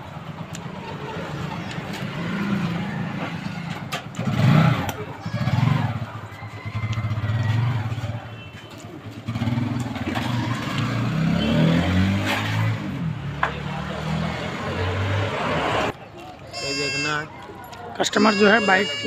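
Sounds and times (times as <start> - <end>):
motorcycle engine revving: 0.0 - 16.0
motorcycle pulling away: 0.2 - 8.3, 9.0 - 13.2.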